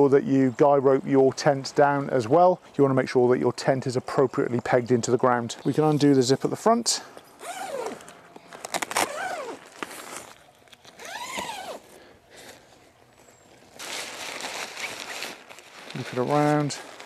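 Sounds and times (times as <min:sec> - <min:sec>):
rustle: 0:07.2 - 0:17.0
tent door zip being undone: 0:07.4 - 0:10.3, 0:10.9 - 0:11.8.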